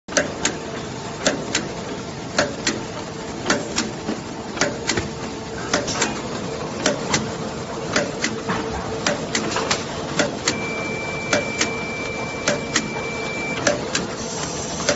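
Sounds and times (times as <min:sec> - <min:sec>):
steady machine hum: 0:00.1 - 0:14.9
machine clacking: 0:12.4 - 0:14.1.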